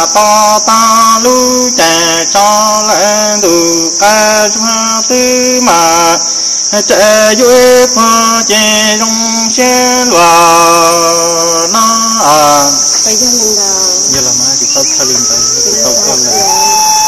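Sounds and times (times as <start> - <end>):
man singing held wavering notes: 0.0 - 12.9
high-pitched insect drone: 0.0 - 17.0.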